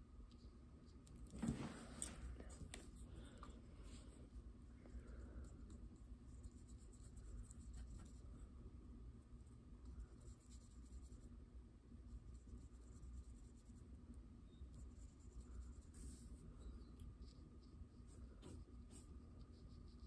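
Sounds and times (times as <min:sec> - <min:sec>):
paintbrush scratching on paper: 0:05.4 - 0:08.5, 0:09.9 - 0:11.4, 0:12.1 - 0:14.0, 0:14.7 - 0:20.0.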